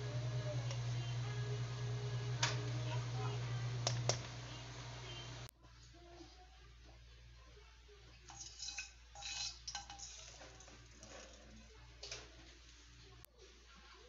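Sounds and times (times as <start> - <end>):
faint steady hum: 0.0 - 8.3
spatula scraping a wok: 8.3 - 11.4.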